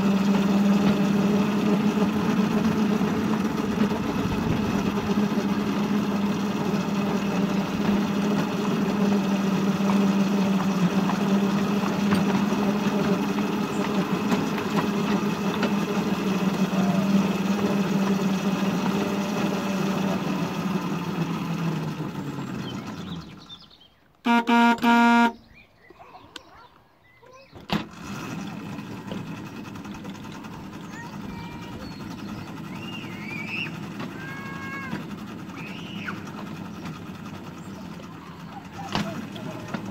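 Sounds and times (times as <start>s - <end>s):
small locomotive engine humming: 0.0s - 39.9s
horn toots: 24.2s - 25.4s.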